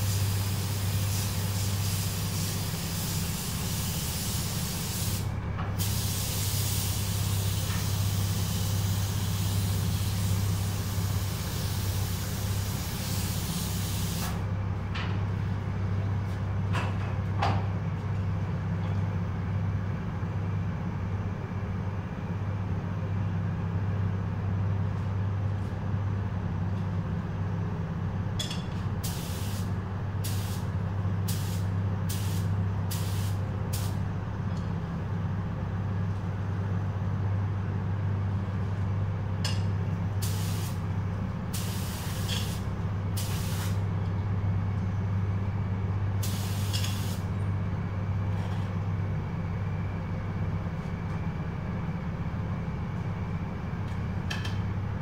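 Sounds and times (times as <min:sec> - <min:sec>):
compressed air hiss: 0:00.0 - 0:14.4, 0:29.0 - 0:30.7, 0:31.3 - 0:34.0, 0:40.2 - 0:40.8, 0:41.5 - 0:42.6, 0:43.2 - 0:43.8, 0:46.2 - 0:47.2
short air hisses: 0:00.0 - 0:14.4, 0:29.0 - 0:30.7, 0:31.3 - 0:34.0, 0:40.2 - 0:40.8, 0:41.5 - 0:42.6, 0:43.2 - 0:43.8, 0:46.2 - 0:47.2
ventilation hum: 0:00.0 - 0:55.0.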